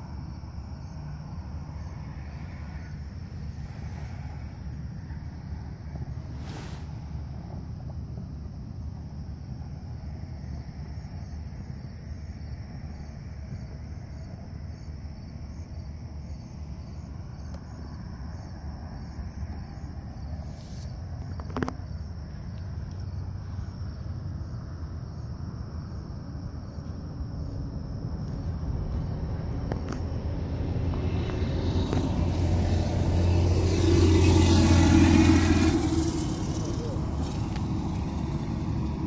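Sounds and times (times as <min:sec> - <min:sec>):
crickets trilling: 0:00.0 - 0:39.0
low rumble: 0:25.8 - 0:39.0.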